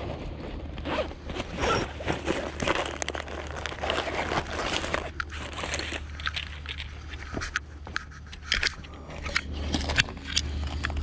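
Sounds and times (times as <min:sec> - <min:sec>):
fabric backpack rustling: 0:00.0 - 0:06.4.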